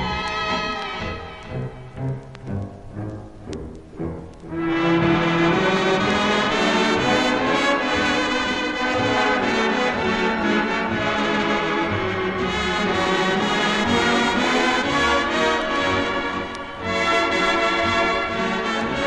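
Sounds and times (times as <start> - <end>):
brass-led orchestral music: 4.0 - 19.0.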